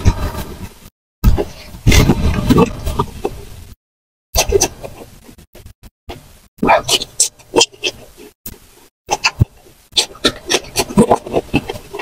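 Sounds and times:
wet eating mouth sounds: 4.4 - 12.0.

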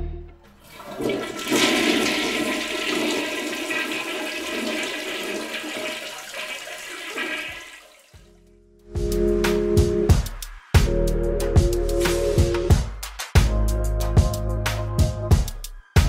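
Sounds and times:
toilet cistern flushing: 0.4 - 8.3.

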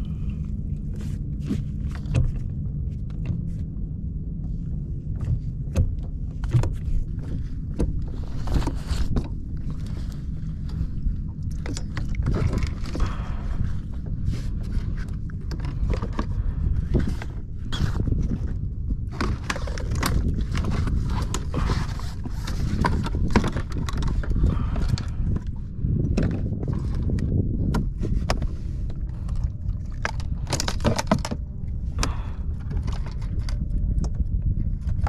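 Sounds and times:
wind rumble on microphone: 0.0 - 35.0
gear knocking against plastic kayak: 11.4 - 35.0.

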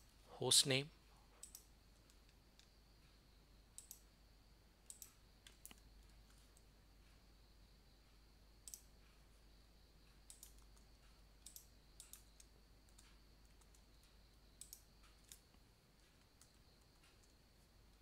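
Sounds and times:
keyboard and mouse clicks: 1.4 - 2.7, 3.8 - 4.1, 4.9 - 6.7, 8.6 - 8.9, 10.3 - 13.9, 14.6 - 17.4.

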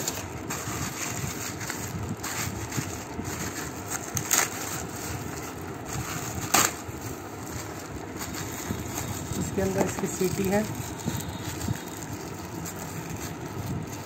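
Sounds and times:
plastic wrap rustling and crinkling: 0.0 - 14.0.

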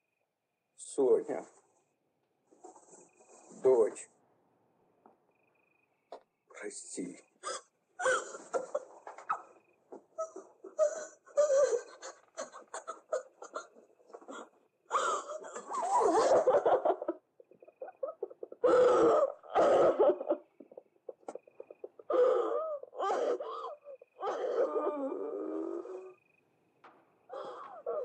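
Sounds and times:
person gasping and sobbing: 10.2 - 16.4, 18.2 - 20.8, 21.7 - 26.2, 27.3 - 28.0.

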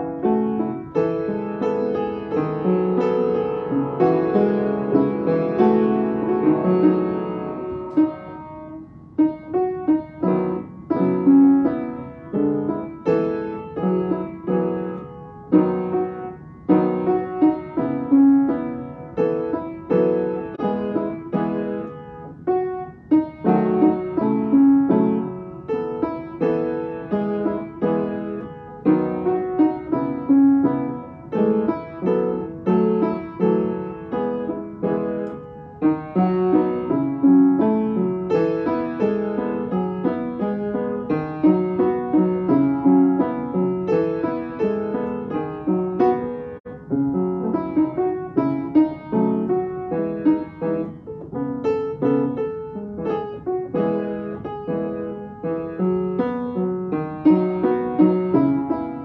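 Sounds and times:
piano playing: 0.0 - 59.0.

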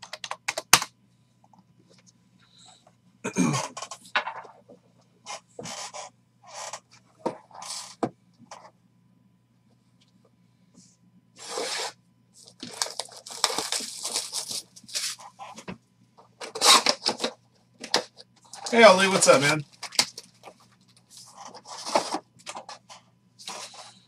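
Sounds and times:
shrink wrap tearing and crinkling: 11.4 - 15.3, 16.4 - 22.8.

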